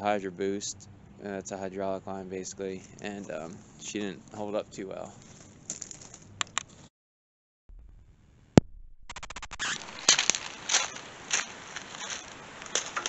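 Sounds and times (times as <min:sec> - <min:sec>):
footsteps on gravel: 0:02.8 - 0:06.8, 0:09.5 - 0:13.0
sharp click: 0:08.6 - 0:10.3.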